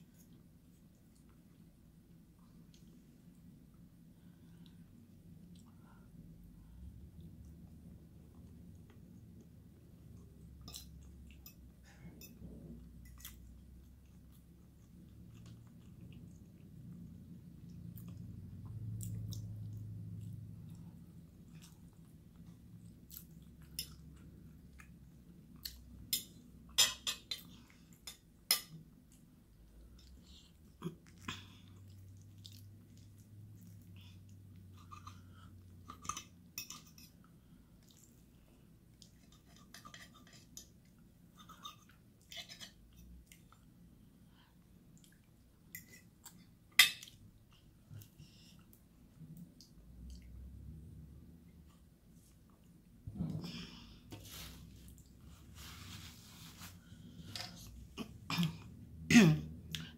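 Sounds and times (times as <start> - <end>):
chewing and mouth sounds: 8.3 - 26.1, 29.0 - 43.8, 44.8 - 50.5.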